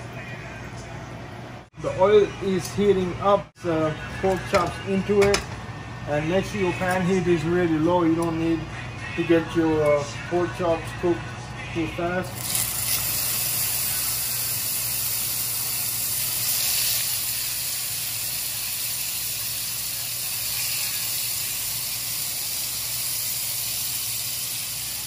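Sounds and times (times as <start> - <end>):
pork chops sizzling in hot oil: 12.3 - 25.0.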